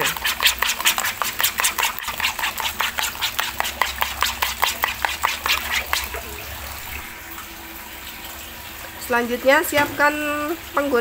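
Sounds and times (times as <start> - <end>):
spoon beating eggs in bowl: 0.0 - 7.1.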